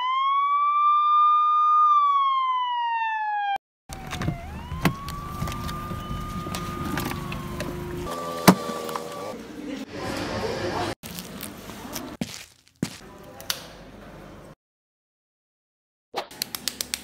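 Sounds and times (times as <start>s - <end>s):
siren-like wail: 0.0s - 9.4s
person getting out of car: 3.9s - 9.4s.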